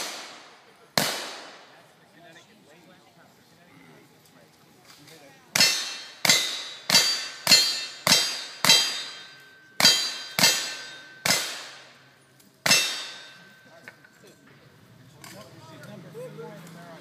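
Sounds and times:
gunshots: 0.0s - 1.8s, 9.8s - 12.0s
steel target clanging: 5.6s - 14.5s.

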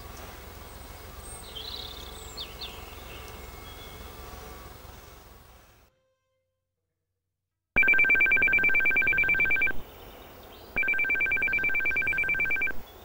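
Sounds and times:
faint outdoor hush: 0.0s - 5.9s
telephone ringing: 7.8s - 9.8s, 10.8s - 12.8s.

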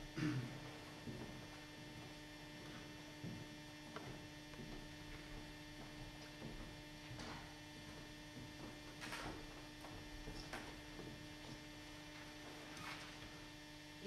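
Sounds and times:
electrical mains hum: 0.0s - 14.0s
faint knocks and rustles: 0.8s - 13.4s.

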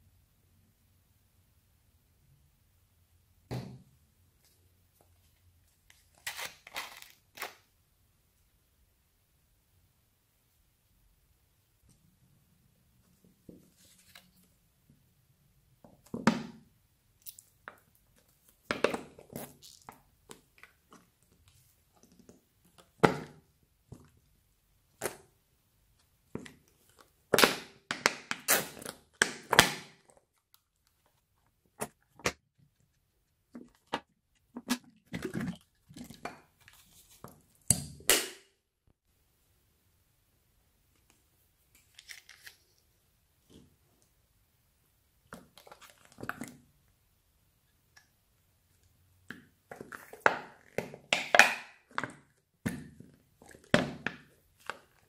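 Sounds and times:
slime squelching and popping: 26.3s - 30.6s.

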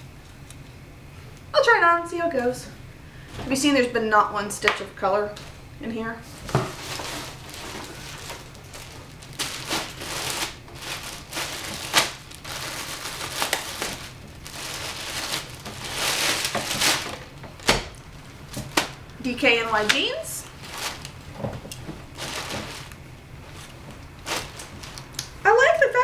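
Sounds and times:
plastic bag crinkling: 5.3s - 25.4s.

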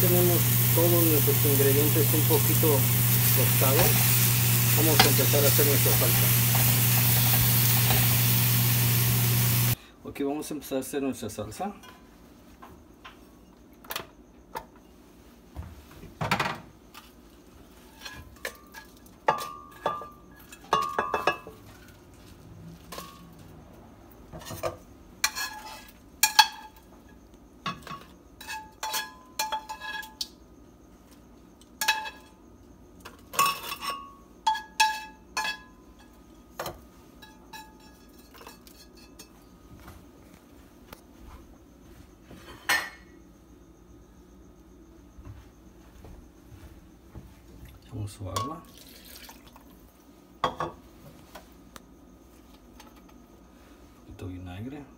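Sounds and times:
metal tongs clinking on glass: 0.3s - 8.6s.

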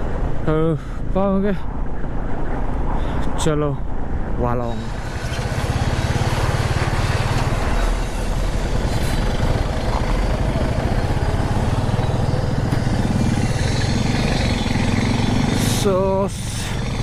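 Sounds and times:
rushing noise: 4.4s - 17.0s
motorcycle engine running: 4.7s - 17.0s.

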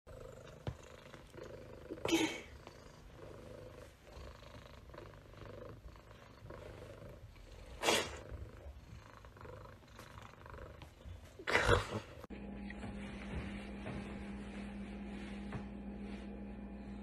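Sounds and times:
cat purring: 0.1s - 12.3s.

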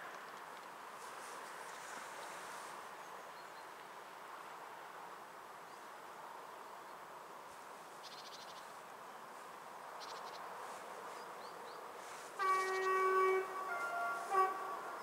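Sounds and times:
locomotive air horn: 12.4s - 15.0s.

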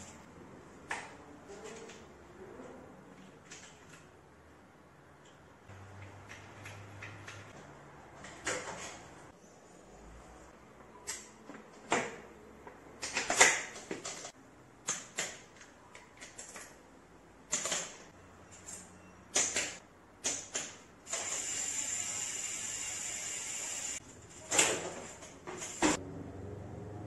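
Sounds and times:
high-pitched whirring hiss: 21.2s - 24.0s.

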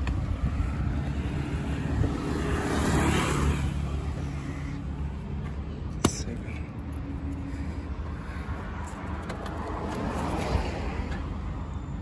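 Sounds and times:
car passing by: 0.6s - 4.8s, 8.6s - 11.5s.

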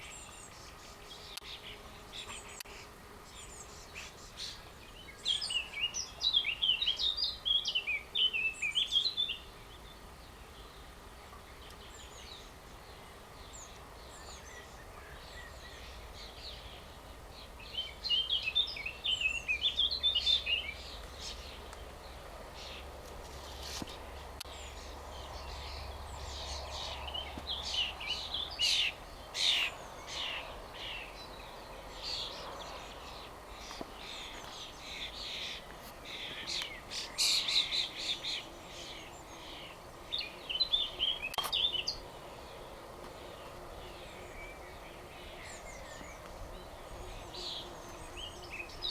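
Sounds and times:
songbirds chirping and trilling: 0.0s - 48.9s.

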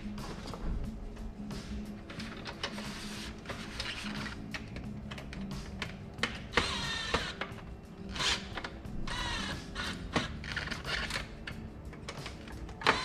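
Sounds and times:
cordless drill whirring: 6.6s - 7.4s, 9.1s - 10.3s.

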